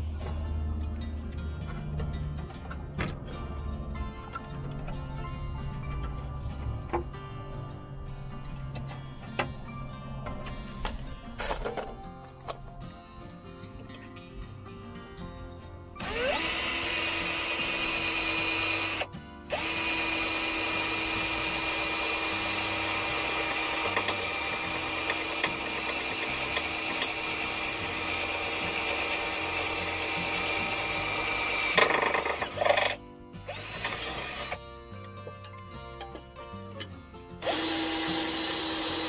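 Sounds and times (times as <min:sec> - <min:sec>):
cordless drill boring metal: 0:16.0 - 0:34.6, 0:37.4 - 0:39.0.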